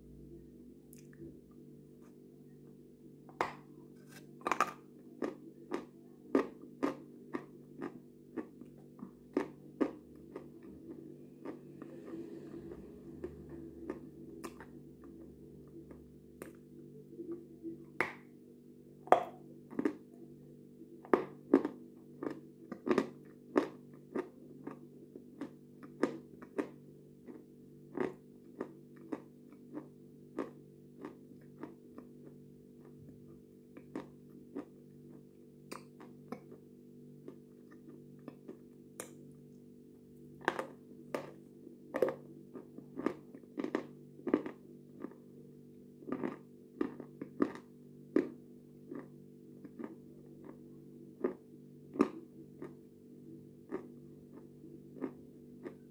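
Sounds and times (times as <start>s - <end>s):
low hum: 0.0s - 5.7s, 8.6s - 21.5s.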